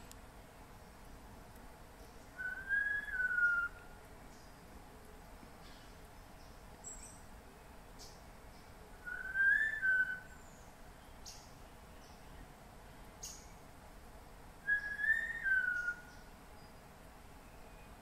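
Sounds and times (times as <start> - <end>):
faint high ticks: 0.0 - 0.2
bird whistling song: 2.4 - 3.8, 9.0 - 11.5, 14.6 - 16.8.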